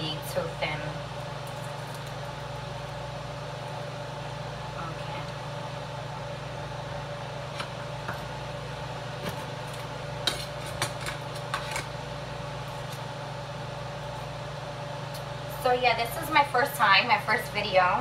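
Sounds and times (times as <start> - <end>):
range hood fan humming: 0.0 - 18.0.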